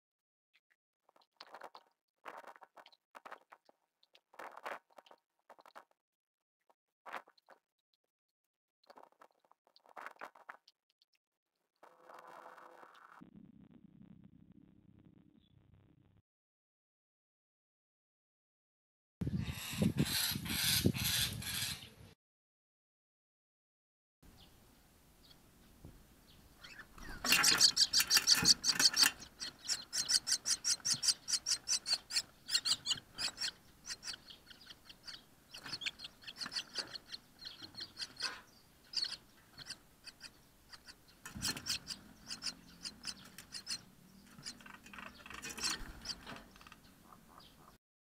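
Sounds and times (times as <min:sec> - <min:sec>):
nestlings begging raspy calls: 0:19.4 - 0:21.9, 0:26.6 - 0:47.8.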